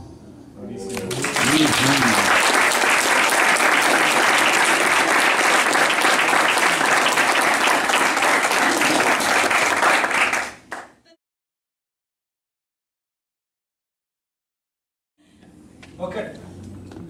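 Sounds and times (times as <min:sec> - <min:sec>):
audience applauding: 0:00.9 - 0:11.0.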